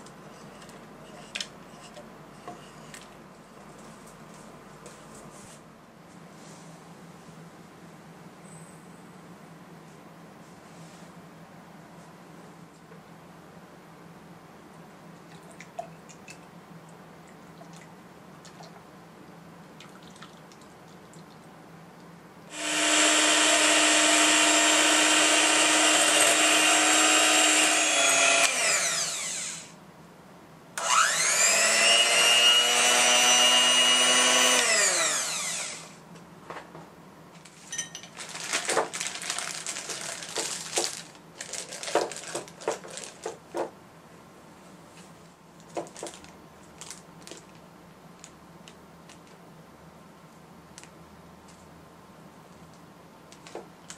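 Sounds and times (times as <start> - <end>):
electric hand mixer whirring: 22.5 - 29.8, 30.8 - 36.0
plastic bag crinkling: 37.4 - 43.7, 45.6 - 49.4.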